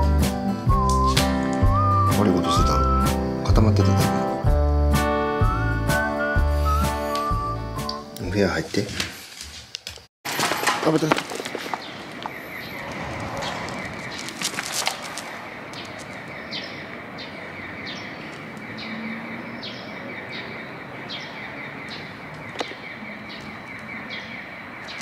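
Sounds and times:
small birds chirping: 10.9s - 25.0s.

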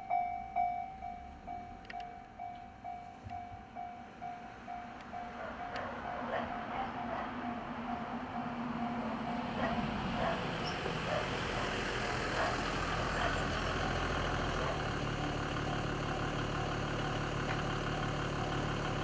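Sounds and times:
level-crossing warning bell: 0.0s - 10.2s
low engine-like hum: 0.0s - 19.0s.

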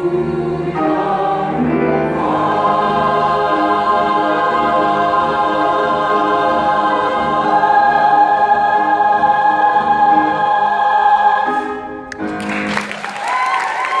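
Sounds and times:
choir holding a chord: 0.0s - 12.6s
audience applause and cheering: 12.1s - 14.0s.

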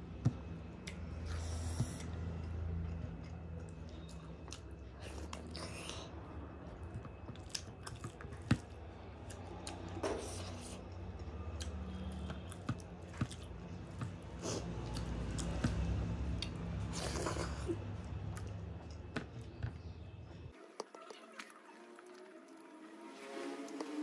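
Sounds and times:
moist chewing and lip smacks: 9.3s - 16.7s, 18.0s - 19.5s.

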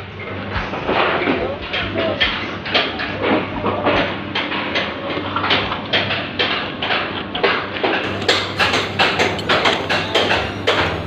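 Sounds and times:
low machine hum: 0.0s - 11.0s
sharp knocking blows: 8.0s - 11.0s.

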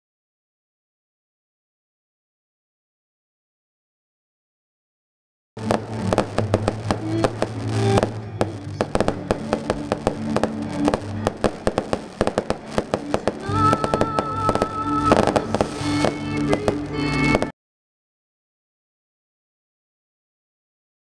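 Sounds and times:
fireworks bangs and crackles: 5.6s - 17.5s
music with held notes: 5.6s - 17.5s.

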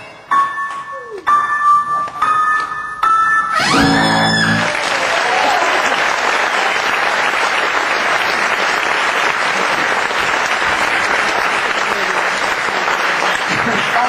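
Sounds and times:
held music chord: 3.6s - 4.8s
audience applauding: 3.7s - 14.0s.

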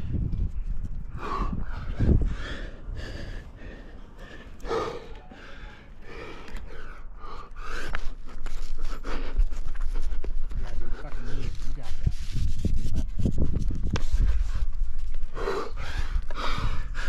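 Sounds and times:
person gasping breaths: 1.1s - 9.7s, 15.3s - 17.0s.

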